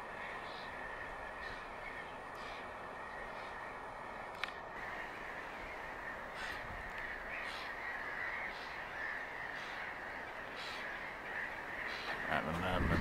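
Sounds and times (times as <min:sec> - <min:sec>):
gulls calling: 0:00.0 - 0:13.0.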